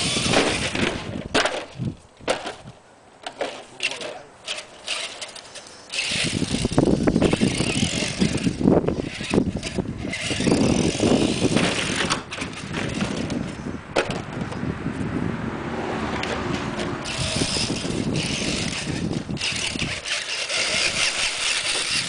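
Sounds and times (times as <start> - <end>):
toy truck motor running: 0.0 - 1.1, 3.8 - 13.6, 17.0 - 22.0
tyres churning on grass: 16.2 - 22.0.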